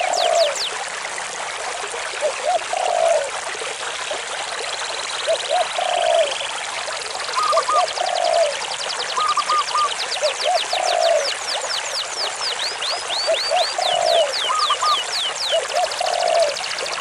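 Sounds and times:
stream rushing over rocks: 0.0s - 4.5s, 5.2s - 17.0s
short low bird calls: 9.2s - 11.3s, 13.3s - 16.6s.

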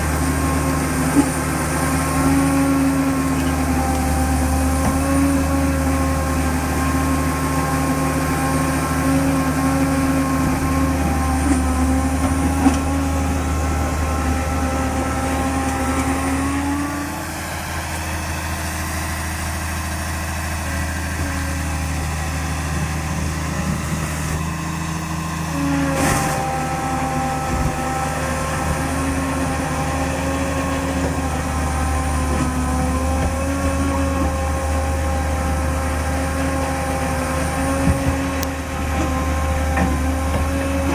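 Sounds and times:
bulldozer diesel engine running: 0.0s - 40.9s.

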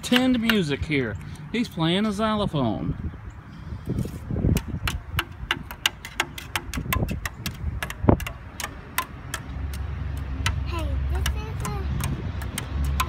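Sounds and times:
twig tapping on wooden slats: 4.5s - 10.6s, 11.2s - 13.0s.

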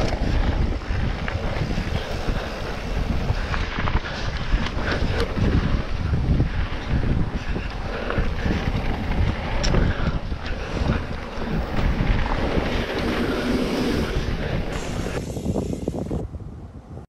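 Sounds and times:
bike rattling over bumps: 0.0s - 16.2s
bike tyres rumbling on dirt: 0.0s - 16.2s
wind buffeting microphone: 0.0s - 17.0s.

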